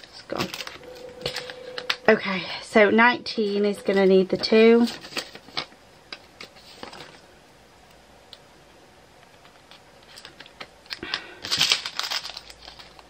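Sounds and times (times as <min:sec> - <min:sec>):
plastic bag being handled: 0:11.5 - 0:13.0.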